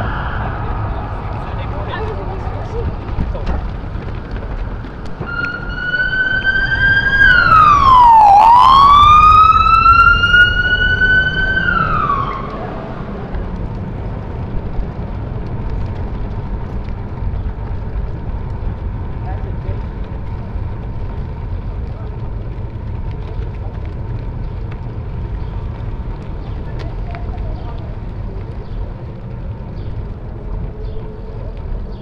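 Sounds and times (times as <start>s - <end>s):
police siren: 0.0s - 2.1s, 5.2s - 13.2s.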